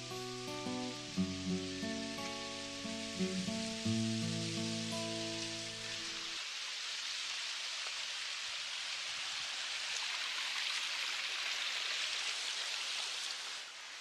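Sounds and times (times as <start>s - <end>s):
stream rushing over rocks: 0.0s - 14.0s.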